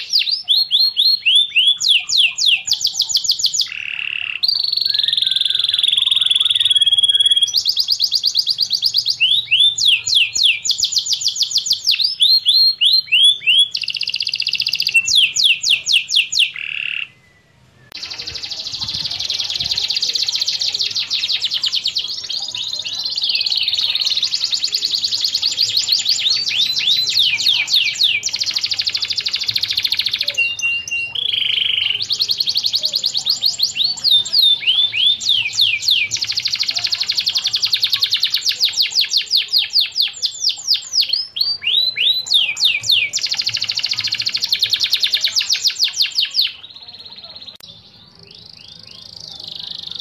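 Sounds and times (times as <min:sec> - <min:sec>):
canary singing trills: 0:00.0 - 0:50.0.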